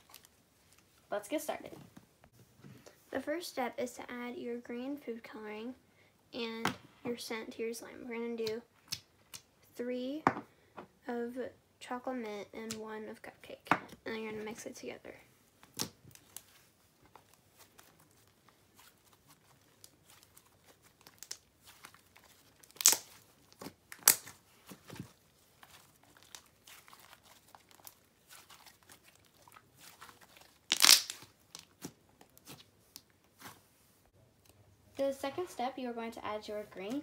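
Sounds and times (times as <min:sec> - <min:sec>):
sticky slime crackling: 0:15.6 - 0:33.6
slime snapping and popping: 0:22.6 - 0:23.2, 0:23.9 - 0:24.3, 0:30.7 - 0:31.8.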